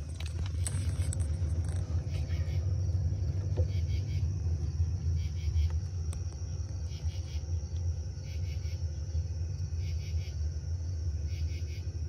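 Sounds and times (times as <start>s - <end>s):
crickets chirping: 0.0s - 12.0s
low rumble: 0.0s - 12.0s.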